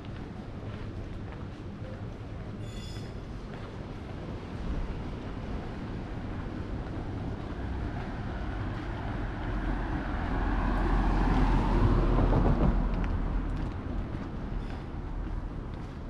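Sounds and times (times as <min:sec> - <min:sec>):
vehicle passing by: 0:07.3 - 0:15.1.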